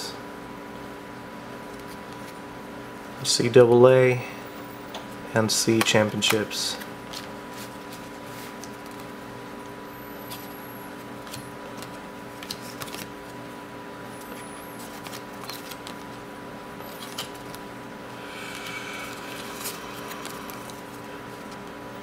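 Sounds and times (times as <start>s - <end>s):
steady electrical hum: 0.0s - 22.0s
cards clicking and sliding: 11.2s - 13.1s, 14.3s - 16.2s, 16.8s - 17.6s, 18.3s - 21.8s.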